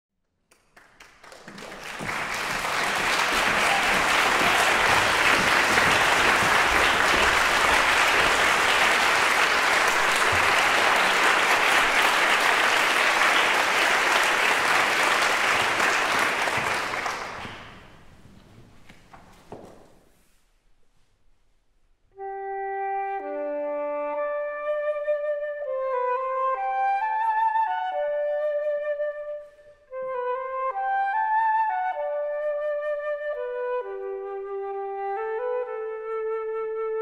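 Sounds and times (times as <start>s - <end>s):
audience applauding: 0.5s - 18.2s.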